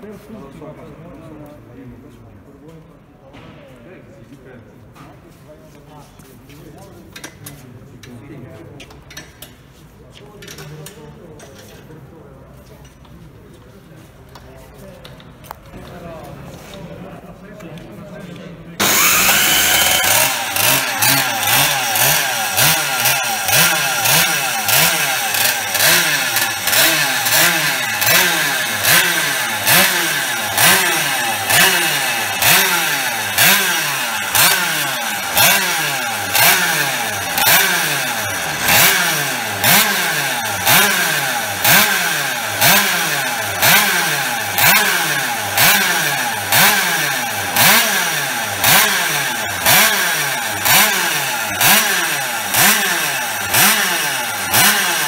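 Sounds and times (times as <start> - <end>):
two-stroke engine revving: 18.8 - 55.0.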